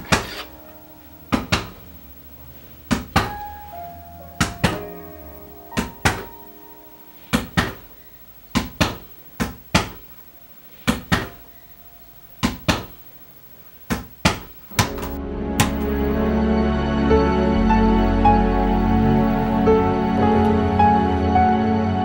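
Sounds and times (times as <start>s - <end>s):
music: 0.0s - 7.3s, 14.8s - 22.0s
ball bouncing on hard floor: 13.9s - 15.9s.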